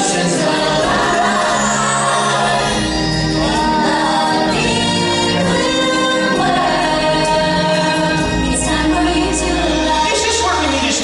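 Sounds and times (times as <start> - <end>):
backing music: 0.0 - 11.0
people singing: 0.0 - 11.0.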